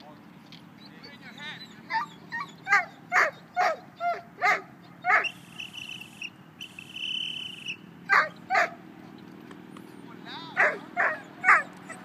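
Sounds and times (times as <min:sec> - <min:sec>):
dog barking: 0:02.7 - 0:05.3, 0:08.1 - 0:08.8, 0:10.6 - 0:11.7.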